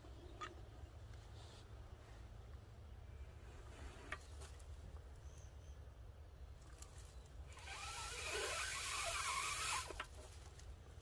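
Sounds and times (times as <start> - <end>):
dry grass crackling: 6.5 - 11.0.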